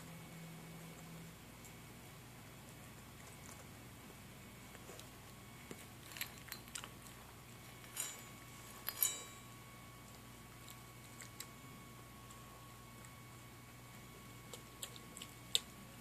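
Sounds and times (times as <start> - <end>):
dog crunching kibble: 4.7 - 8.2
kibble clinking metal bowl: 7.8 - 9.6.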